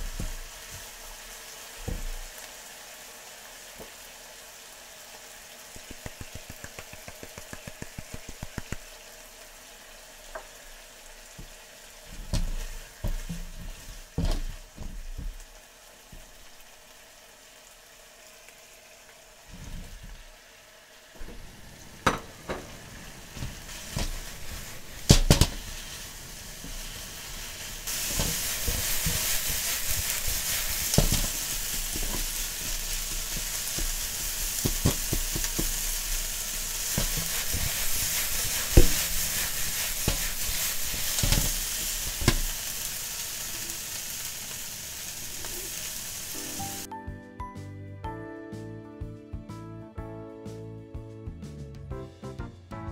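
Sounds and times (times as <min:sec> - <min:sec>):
food sizzling: 0:00.0 - 0:47.0
spatula scraping frying pan: 0:27.8 - 0:42.6.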